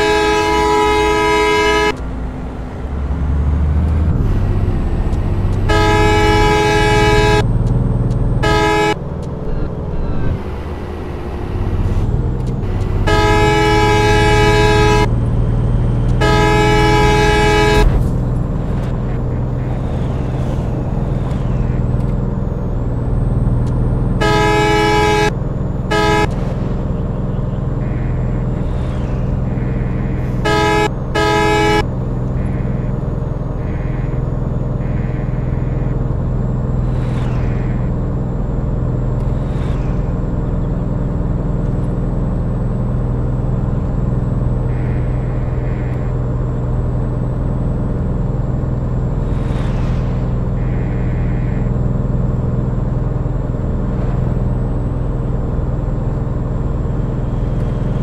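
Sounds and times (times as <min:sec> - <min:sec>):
vehicle horn honking: 0:00.0 - 0:02.0, 0:05.6 - 0:07.4, 0:08.4 - 0:09.0, 0:12.7 - 0:15.1, 0:16.1 - 0:18.0, 0:24.2 - 0:26.4, 0:27.3 - 0:28.8, 0:29.4 - 0:33.0, 0:44.6 - 0:46.2
engine and road noise: 0:00.0 - 0:58.0.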